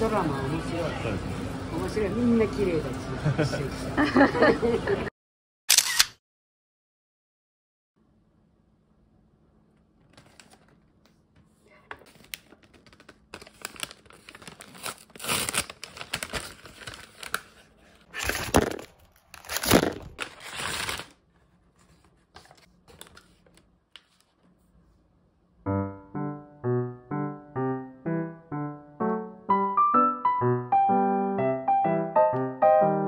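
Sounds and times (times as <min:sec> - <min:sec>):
paper bag rustling: 0:11.9 - 0:24.4
piano music: 0:25.6 - 0:33.0.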